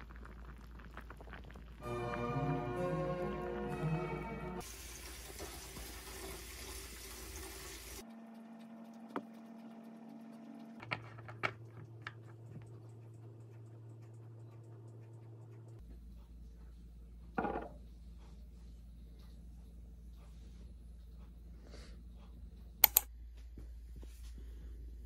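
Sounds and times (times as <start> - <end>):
stew boiling in pot: 0.0 - 3.6, 4.6 - 22.1
background music: 1.8 - 4.6
low room hum: 5.9 - 25.0
small sharp clicks: 22.8 - 23.1.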